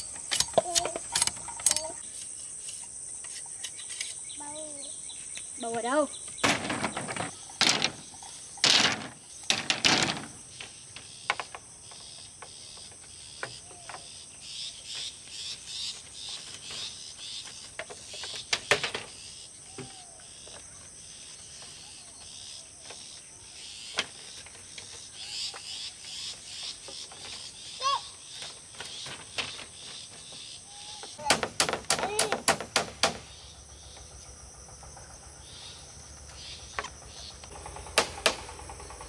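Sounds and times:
crickets trilling: 0.0s - 39.0s
loud knocks: 6.4s - 10.4s, 31.2s - 33.3s.

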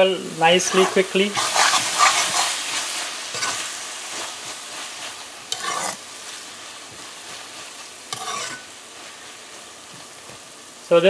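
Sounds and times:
cabbage sizzling: 0.0s - 11.0s
metal spoon scraping metal pot: 0.7s - 2.5s, 3.3s - 3.6s, 5.5s - 6.0s, 8.1s - 8.7s.

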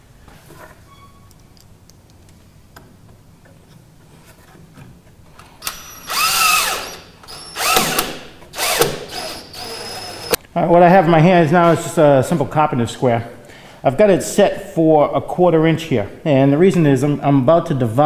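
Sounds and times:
cordless drill motor whining: 5.6s - 10.4s.

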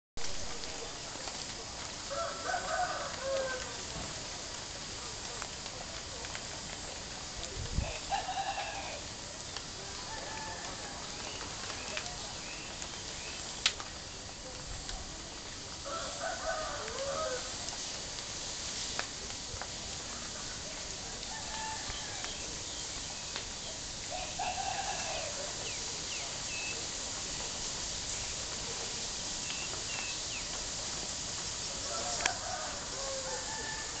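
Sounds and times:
background hiss: 0.2s - 34.0s
rooster crowing: 2.1s - 3.8s, 7.8s - 9.1s, 9.8s - 11.3s, 15.8s - 17.6s, 21.2s - 22.5s, 24.1s - 25.5s, 31.8s - 34.0s.

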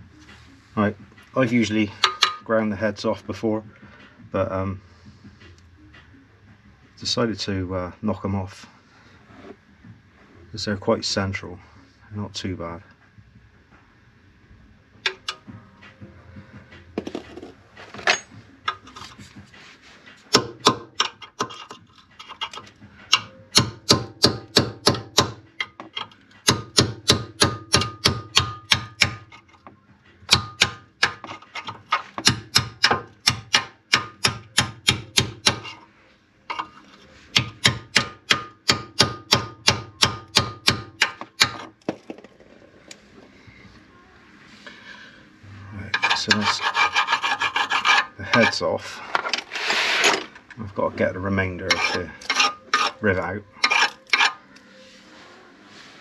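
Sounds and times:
hammer striking chisel on metal: 2.0s - 2.4s, 15.1s - 15.4s, 20.3s - 21.7s, 22.3s - 29.3s, 30.3s - 35.8s, 37.3s - 41.7s, 51.7s - 53.0s, 53.6s - 54.4s.

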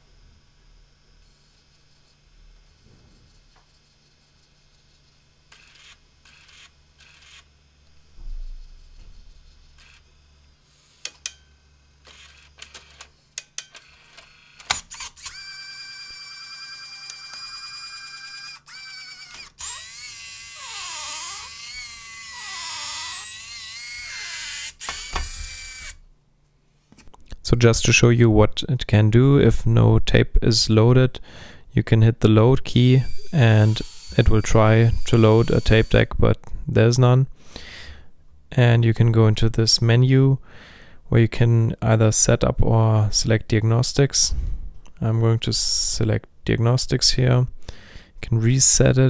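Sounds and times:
tape changer motor whirring: 0.1s - 8.7s, 9.3s - 26.0s, 33.0s - 36.2s
tape changer clicks: 12.1s - 16.0s, 17.0s - 17.6s
high motor whine: 13.9s - 26.0s, 33.0s - 36.1s.

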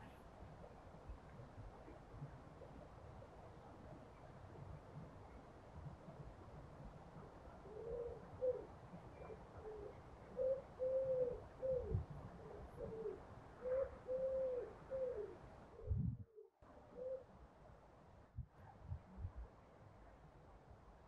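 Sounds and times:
pigeon cooing: 7.6s - 8.7s, 9.6s - 15.4s.

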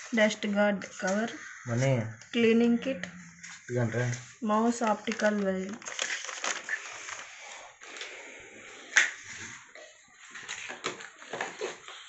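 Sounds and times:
packaging rustling: 3.4s - 12.0s.

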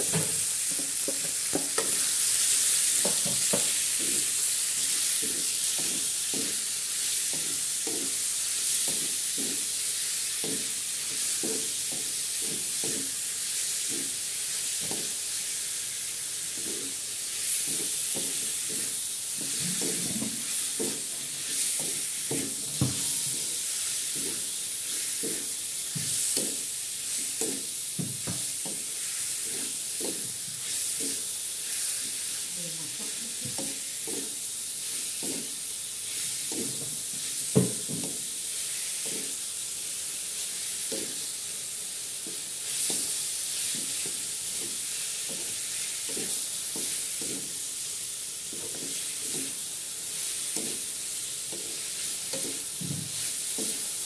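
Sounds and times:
pork sizzling in a wok: 0.0s - 54.0s
wooden spatula scraping a pan: 28.4s - 37.9s, 42.7s - 47.6s, 48.5s - 53.9s.

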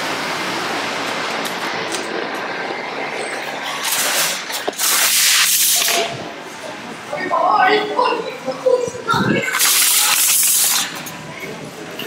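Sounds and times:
shopping cart rattling on pavement: 3.1s - 6.1s
hissing rush: 3.9s - 6.3s.

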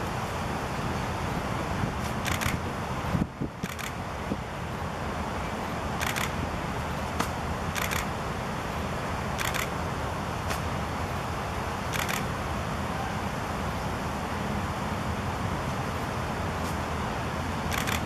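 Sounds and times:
camera shutters firing: 2.2s - 2.6s, 3.6s - 4.0s, 6.0s - 6.3s, 7.8s - 8.1s, 9.4s - 9.7s, 11.9s - 12.3s, 17.7s - 18.0s.

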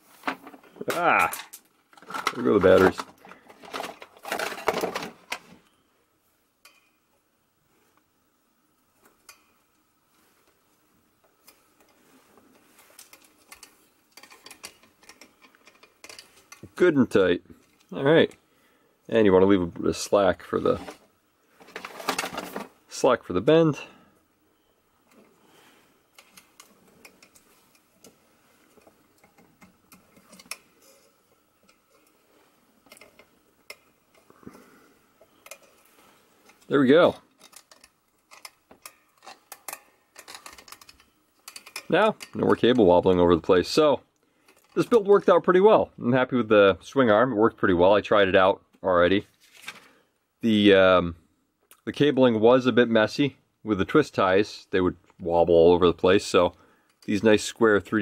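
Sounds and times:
cable rustling: 0.0s - 5.8s, 8.8s - 18.4s, 20.1s - 23.1s, 24.9s - 43.8s, 44.4s - 45.4s, 49.2s - 50.1s
clatter of small hard objects: 0.2s - 5.5s, 21.6s - 22.8s.

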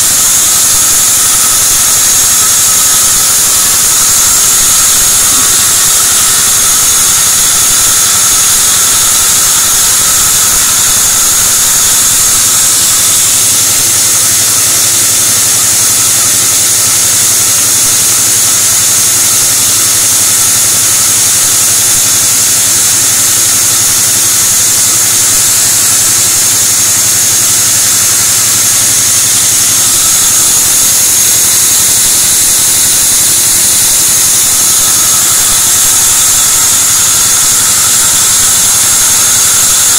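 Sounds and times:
sawmill machine drone: 0.0s - 39.9s.

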